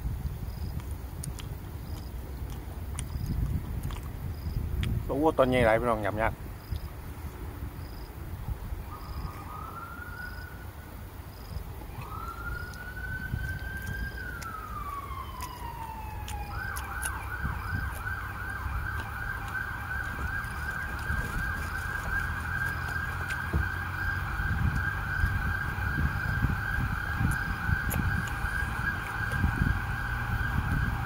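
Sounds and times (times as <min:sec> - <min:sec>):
emergency vehicle siren: 0:08.8 - 0:31.0.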